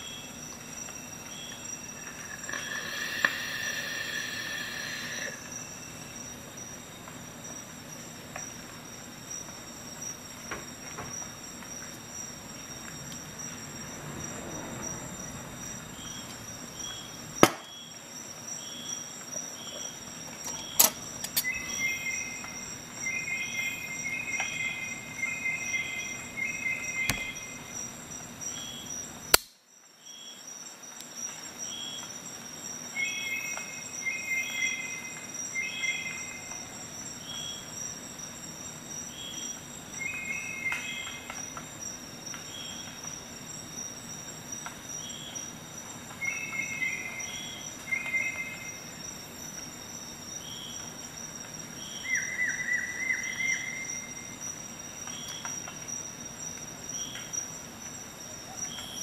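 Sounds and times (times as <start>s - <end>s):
faint high whine: 0.0s - 8.7s, 19.6s - 30.2s
insects chirping: 0.0s - 59.0s
sharp click: 29.3s - 29.6s.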